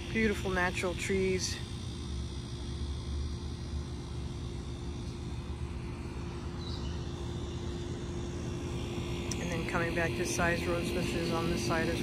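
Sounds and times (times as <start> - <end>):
faint hum: 0.0 - 12.0.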